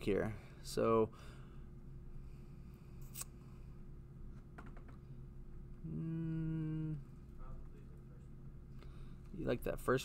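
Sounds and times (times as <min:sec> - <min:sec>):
steady low hum: 0:00.0 - 0:10.0
man's wordless uhh: 0:05.8 - 0:07.1.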